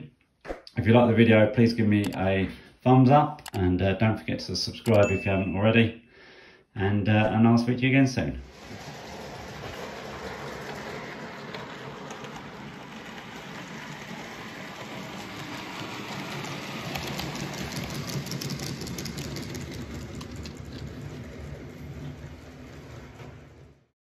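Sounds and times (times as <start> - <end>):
model train running on track: 8.5 - 23.8
wheels clicking over rail joints: 8.5 - 23.9.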